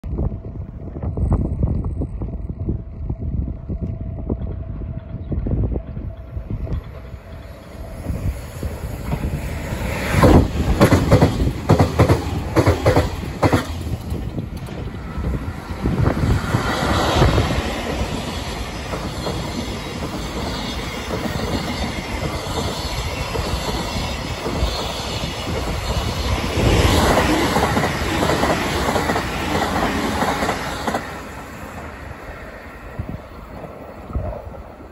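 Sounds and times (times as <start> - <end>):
freight train wheels clattering: 4.3 - 31.9.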